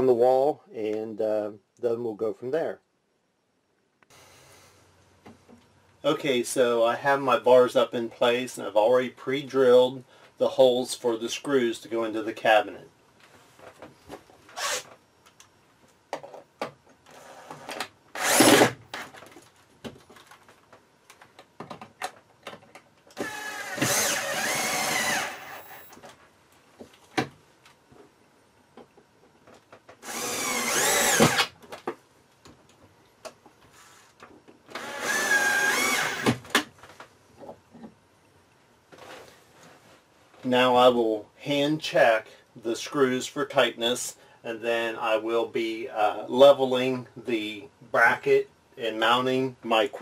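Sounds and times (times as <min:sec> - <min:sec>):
cordless drill driving screws: 0:14.6 - 0:14.9, 0:17.2 - 0:18.8, 0:23.2 - 0:26.0, 0:30.0 - 0:31.6, 0:34.7 - 0:36.5.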